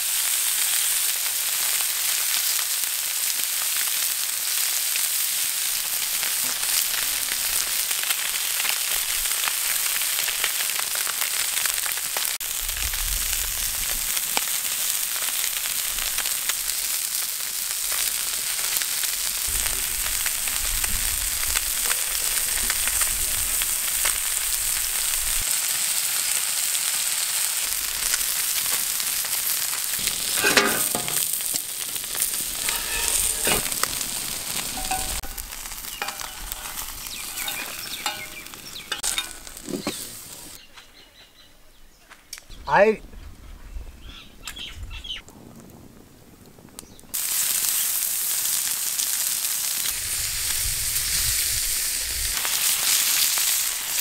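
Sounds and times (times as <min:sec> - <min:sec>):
fish sizzling on a griddle: 0:00.0 - 0:40.7, 0:44.1 - 0:54.0
metal spatula scraping griddle: 0:30.0 - 0:40.6.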